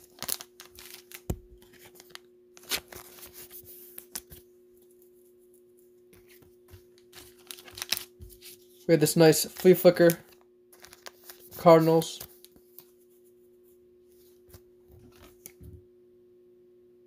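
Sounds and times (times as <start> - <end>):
trading cards clicking and rustling: 0.0 - 4.4, 6.2 - 12.9
faint steady hum: 0.0 - 17.0.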